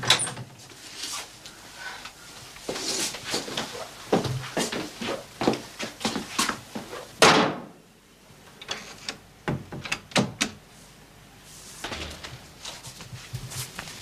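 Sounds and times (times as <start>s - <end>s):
door slamming: 11.8s - 12.7s.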